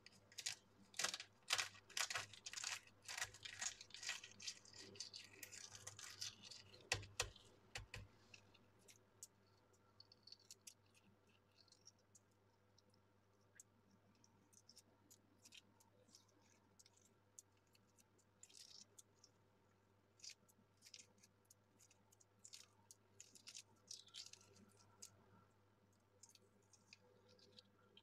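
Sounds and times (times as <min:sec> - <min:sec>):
eggshell crackling: 0:00.0 - 0:19.4, 0:20.0 - 0:28.0.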